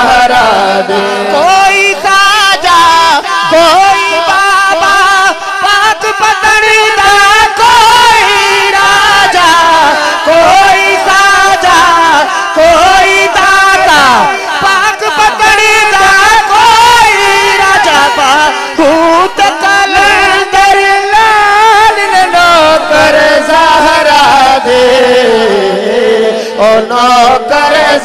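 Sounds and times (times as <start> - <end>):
man singing through microphone: 0.0 - 28.0.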